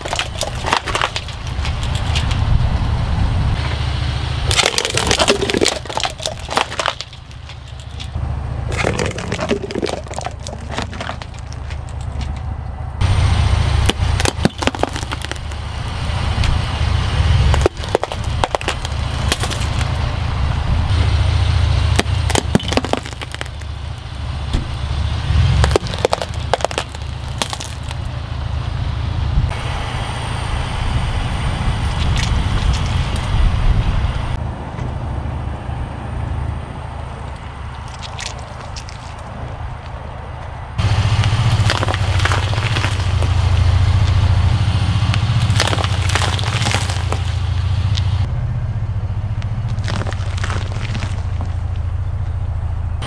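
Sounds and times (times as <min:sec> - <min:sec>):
tyre crushing objects: 0:00.0 - 0:02.5, 0:04.4 - 0:12.4, 0:13.8 - 0:15.9, 0:17.4 - 0:20.1, 0:21.9 - 0:24.8, 0:25.4 - 0:28.1, 0:41.1 - 0:44.3, 0:45.1 - 0:48.3, 0:49.7 - 0:51.6
car engine rumble: 0:00.0 - 0:53.0.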